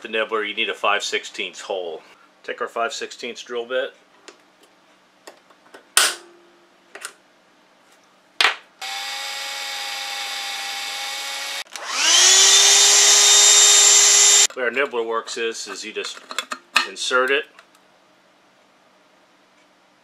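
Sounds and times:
power drill whining: 8.8 - 14.5.

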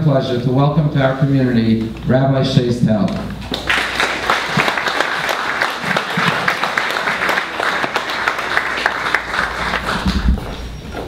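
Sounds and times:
audience applauding: 3.4 - 10.6.

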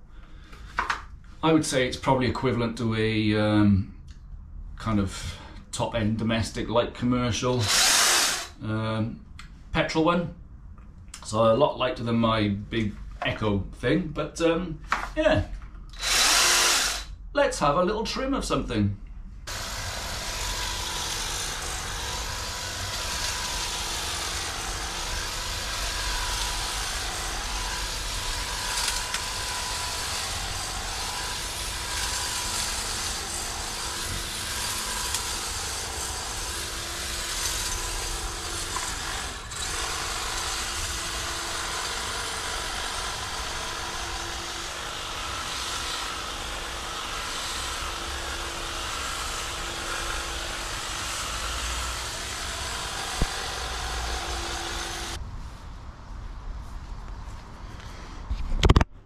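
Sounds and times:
hedge trimmer motor whine: 7.6 - 8.6, 15.9 - 17.1, 19.5 - 55.2.

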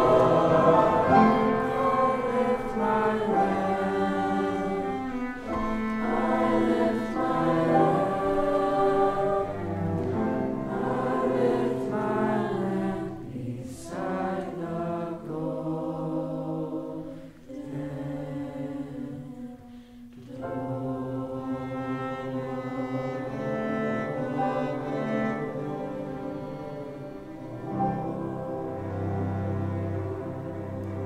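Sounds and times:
mixed choir singing: 0.0 - 31.0
singers breathing: 17.0 - 17.5, 19.6 - 20.3.

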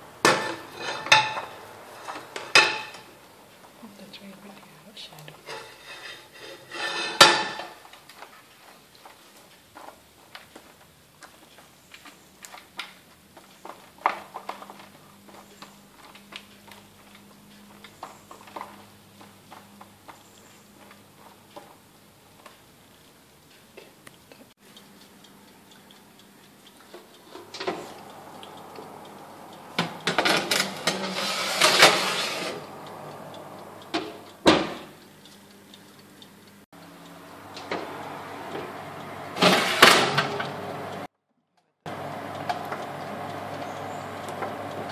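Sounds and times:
tray scraping along rack: 0.0 - 3.2, 5.1 - 7.8, 26.8 - 35.0, 37.4 - 41.1
metal tray clinking on rack: 0.2 - 3.1, 5.4 - 7.8, 29.8 - 32.6
oven door thud: 34.0 - 35.0, 39.4 - 40.6.

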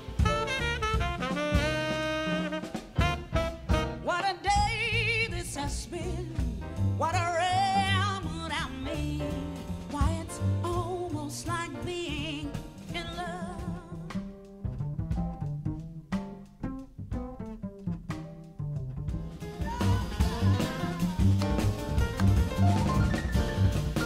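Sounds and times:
jazz quartet playing: 0.0 - 24.0
woman singing jazz with vibrato: 0.1 - 14.5, 19.3 - 22.0.

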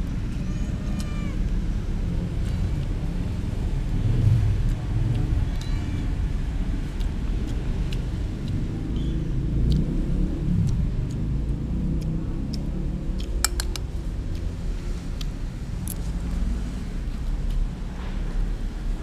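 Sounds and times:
low steady rumble: 0.0 - 19.0
metal spoon clicking on plate: 13.2 - 13.9.

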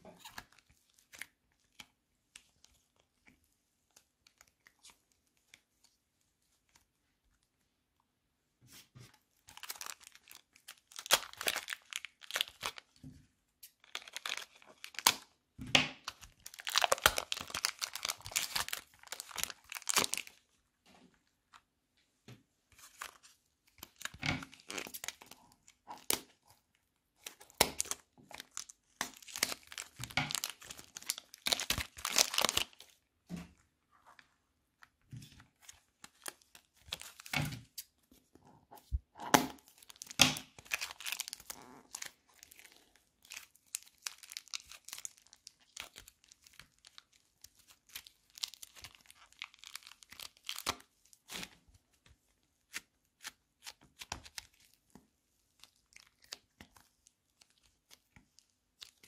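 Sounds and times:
slime crackling and popping: 9.5 - 13.0, 13.6 - 15.4, 16.0 - 20.4, 22.9 - 26.4, 27.2 - 32.9, 39.3 - 51.6.

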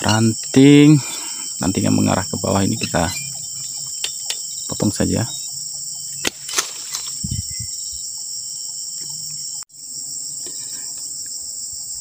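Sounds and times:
high-pitched insect drone: 0.0 - 12.0
pruning shears snipping: 6.2 - 7.2.

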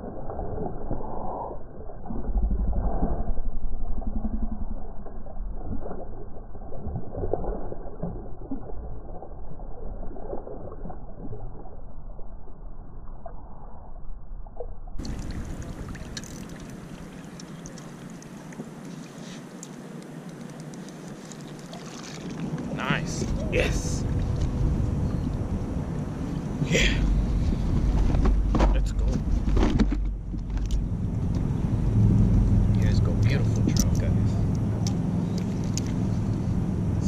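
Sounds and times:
fish thrashing and splashing: 15.0 - 19.6, 20.4 - 25.2
faint clicks: 19.5 - 22.7.

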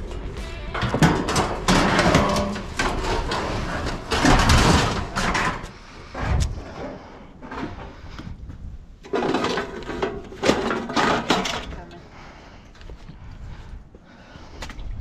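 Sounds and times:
sheet metal rattling clatter: 0.0 - 5.7.

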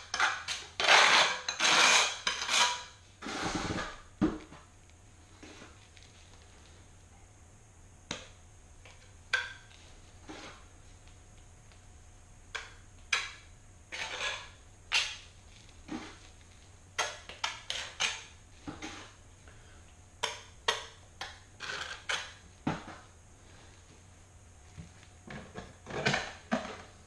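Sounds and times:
steel trowel scraping tile: 0.0 - 4.0, 13.9 - 14.6, 21.6 - 22.3.

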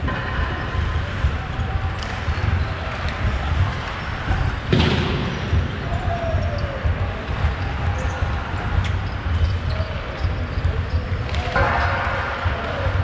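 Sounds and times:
low rumble in ice rink: 0.0 - 13.0
hockey puck impact: 4.7 - 5.8.

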